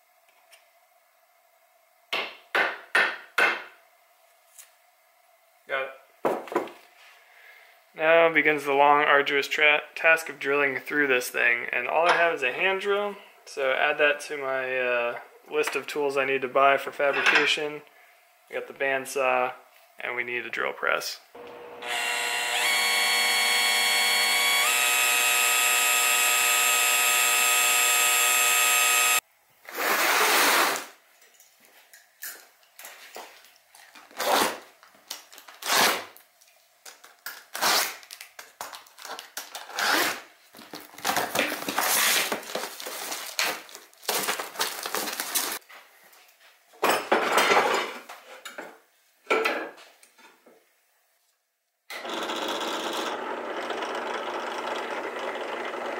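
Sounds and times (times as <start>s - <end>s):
electric drill boring metal: 21.4s - 29.2s, 51.9s - 55.9s.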